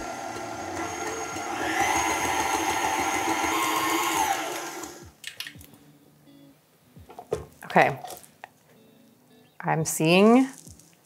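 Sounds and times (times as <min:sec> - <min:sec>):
stand mixer whirring: 0:00.0 - 0:05.0.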